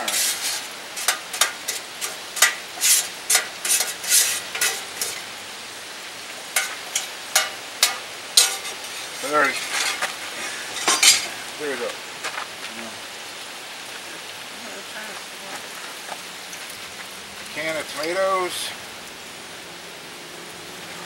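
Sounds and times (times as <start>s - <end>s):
metal spatula scraping a pot: 0.0s - 5.3s, 6.5s - 11.4s
faint sizzling: 0.0s - 21.0s.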